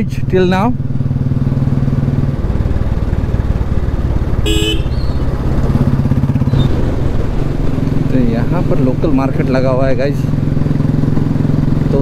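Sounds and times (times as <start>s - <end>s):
motorcycle engine running: 0.0s - 12.0s
horn beep: 4.4s - 5.2s.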